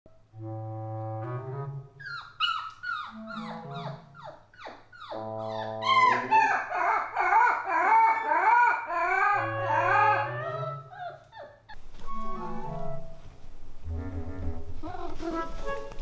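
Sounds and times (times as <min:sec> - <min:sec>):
comic background music: 0:00.3 - 0:02.0, 0:03.2 - 0:04.2, 0:05.2 - 0:06.5, 0:09.0 - 0:11.0, 0:12.1 - 0:13.2, 0:13.8 - 0:16.0
wailing melody line: 0:03.1 - 0:04.2, 0:05.1 - 0:11.0.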